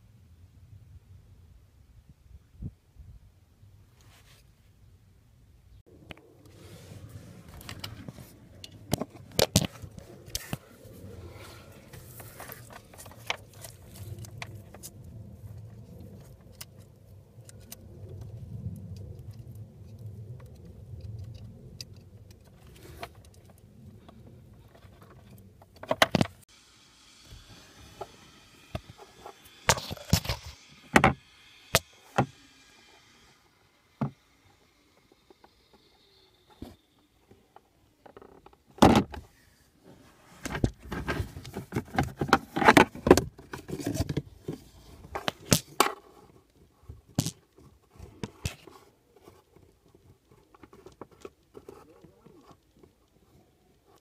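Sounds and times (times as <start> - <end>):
faint hiss: 26.3 - 54.0.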